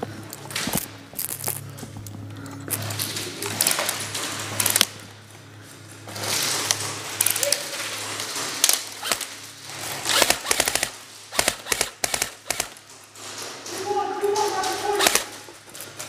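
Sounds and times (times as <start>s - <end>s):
steady low hum: 0.0s - 7.3s
airsoft guns firing: 7.2s - 15.5s.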